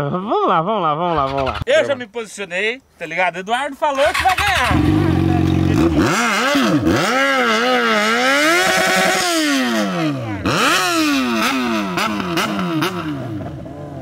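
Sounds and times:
motorcycle engine revving: 0:04.0 - 0:14.0.

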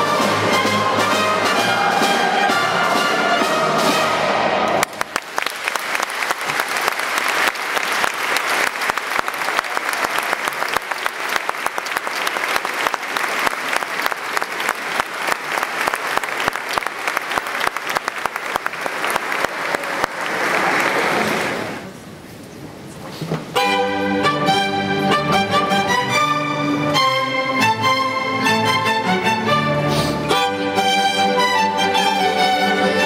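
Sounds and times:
audience applauding: 0:04.7 - 0:21.9.

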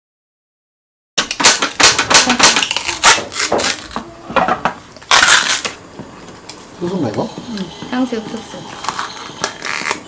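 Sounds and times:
takeout packaging crinkling: 0:01.3 - 0:04.2, 0:05.0 - 0:07.2, 0:08.6 - 0:10.0.

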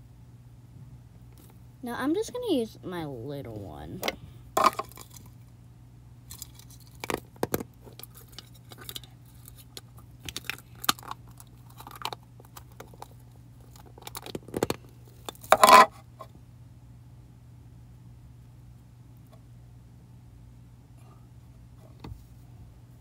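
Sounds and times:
plastic case clatter: 0:04.6 - 0:05.2, 0:07.0 - 0:09.0, 0:15.4 - 0:15.9
plastic case clicking and rattling: 0:13.8 - 0:14.8.

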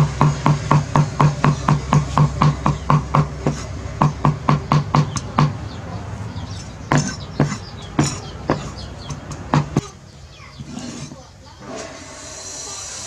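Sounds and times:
cleaver chopping on wooden board: 0:00.0 - 0:05.6, 0:06.9 - 0:09.9.

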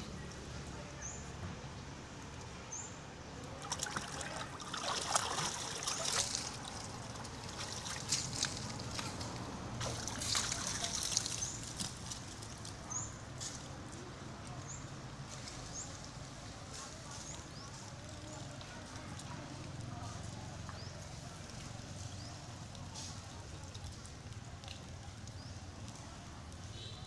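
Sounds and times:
water splashing in a basin: 0:03.5 - 0:12.7.

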